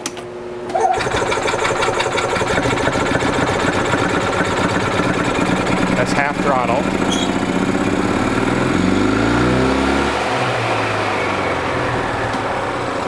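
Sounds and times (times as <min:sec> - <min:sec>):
golf cart engine running: 0:00.9 - 0:11.5.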